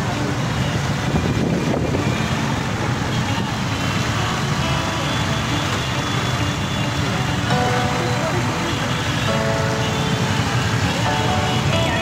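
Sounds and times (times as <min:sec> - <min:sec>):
vehicle engines passing: 0:00.0 - 0:12.0
people's voices: 0:07.0 - 0:12.0.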